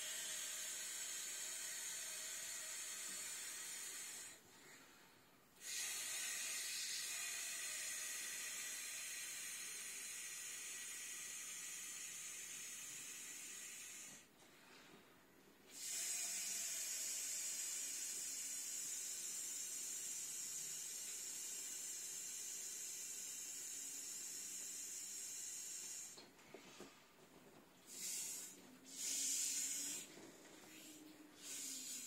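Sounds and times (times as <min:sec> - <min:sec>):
breath blowing up inflatable: 0:27.9 - 0:32.0.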